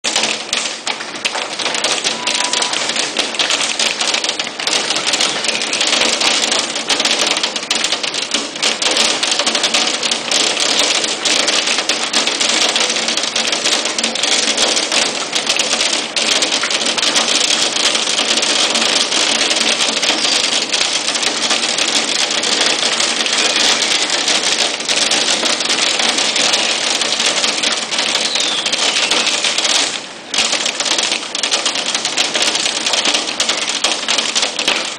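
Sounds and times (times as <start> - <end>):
hail and heavy rain pelting: 0.0 - 34.9
faint falling whistle: 2.2 - 2.8.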